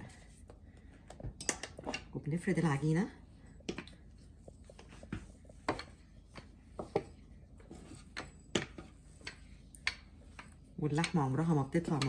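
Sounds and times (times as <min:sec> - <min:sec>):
soft rubbing of dough: 0:02.4 - 0:11.8.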